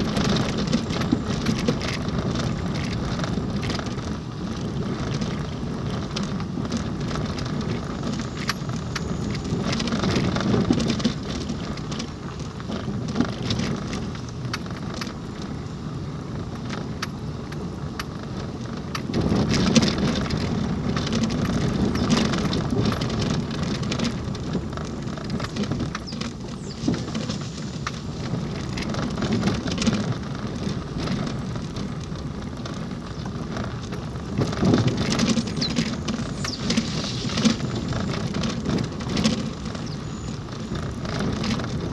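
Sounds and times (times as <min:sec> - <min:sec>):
tyres on gravel road: 0:00.0 - 0:41.9
knocks and rattles: 0:18.0 - 0:41.9.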